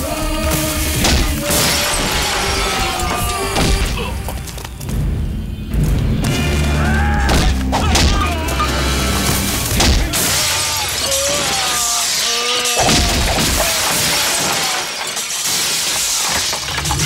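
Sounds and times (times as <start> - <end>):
wooden shutters and glass shattering: 0.0 - 4.9, 6.2 - 17.0
action score music: 0.0 - 10.5.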